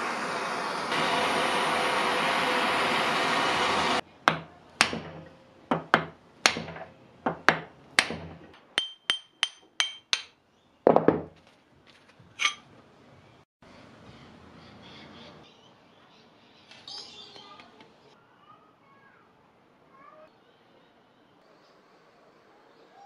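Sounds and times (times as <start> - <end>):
gas torch hissing: 0.0 - 4.0
hammer striking metal: 4.3 - 10.4.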